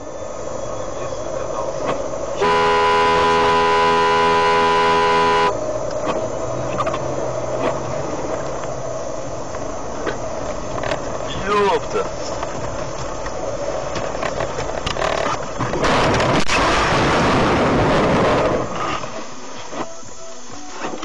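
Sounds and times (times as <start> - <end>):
road and engine noise: 0.0 - 21.0
vehicle horn blast: 2.4 - 5.6.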